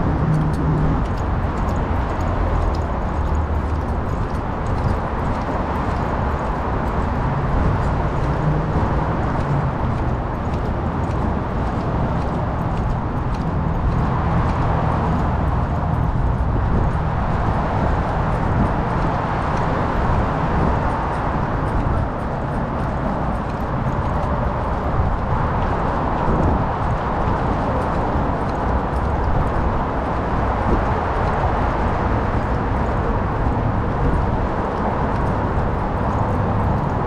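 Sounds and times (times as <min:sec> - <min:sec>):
traffic rumble: 0:00.0 - 0:37.0
wind: 0:00.0 - 0:37.0
small knocks and clicks: 0:00.1 - 0:17.0.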